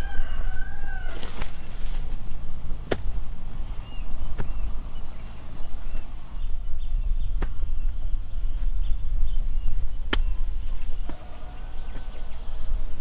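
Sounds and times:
hand hoe chopping into soil: 2.8 - 4.7, 7.3 - 7.8, 10.0 - 11.2.

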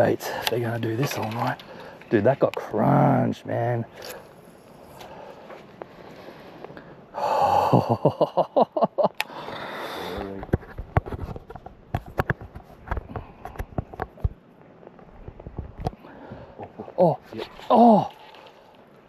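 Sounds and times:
reel and rod clicks and knocks: 0.4 - 2.6.

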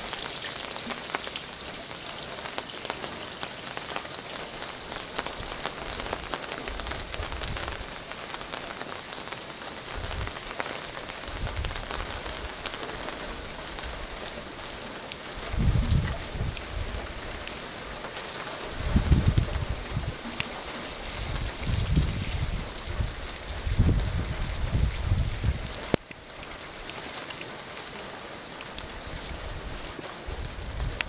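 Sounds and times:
rain pattering on paving: 0.0 - 31.0
water jet splashing on paving: 0.0 - 31.0
water running from downspout: 0.0 - 31.0.

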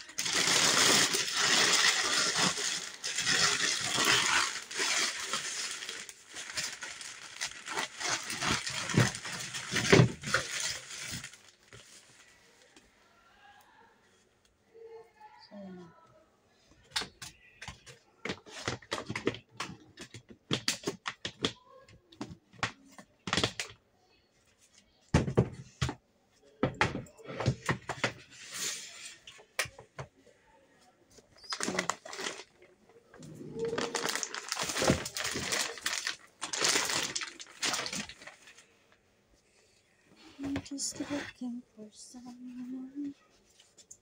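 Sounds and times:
plastic bags crinkling: 0.0 - 12.3, 31.4 - 38.8.

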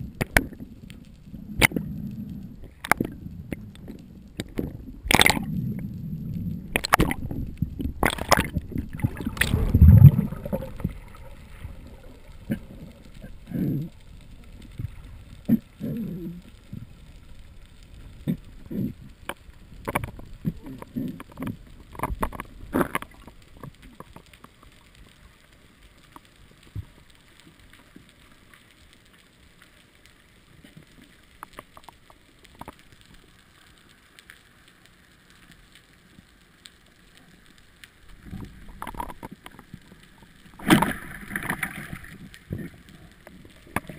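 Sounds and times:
muffled underwater sound: 0.0 - 25.0
faint clicks and knocks: 0.0 - 43.9
churning bubbles and thrashing: 1.5 - 14.0, 19.8 - 24.0, 38.1 - 43.9.

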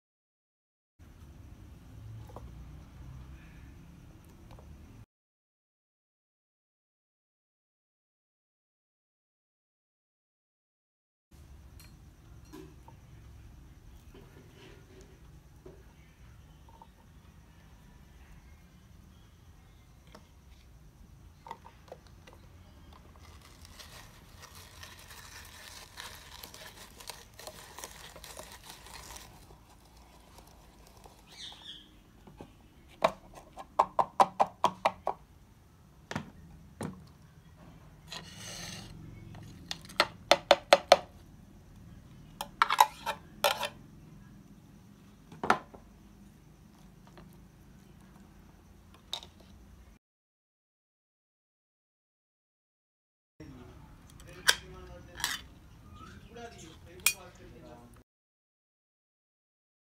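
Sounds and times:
vegetable chopper grinding: 23.2 - 31.2.

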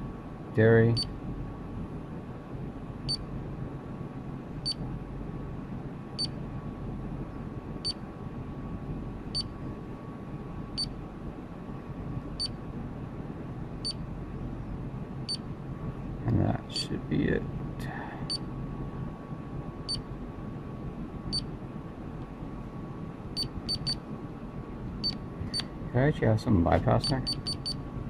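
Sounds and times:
steady low hum: 0.0 - 28.0
keypad beeps: 23.4 - 24.0, 27.2 - 27.8.

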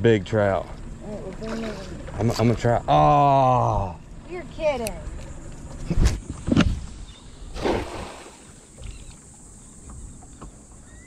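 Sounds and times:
quiet water noise: 0.0 - 5.9, 6.5 - 11.0
cast net splashing into water: 7.6 - 8.6.

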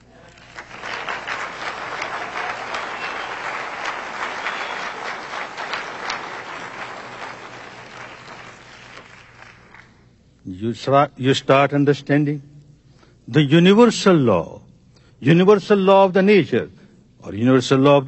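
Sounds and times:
audience applauding: 0.0 - 10.0.

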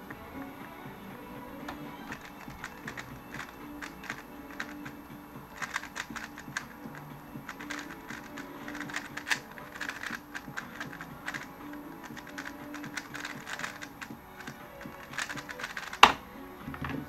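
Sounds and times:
speedcube clicking and clacking: 1.6 - 16.2.

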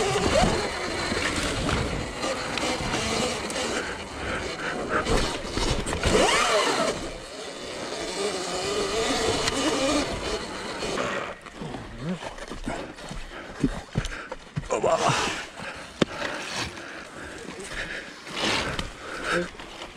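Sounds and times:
electric motor whine: 0.0 - 11.9.

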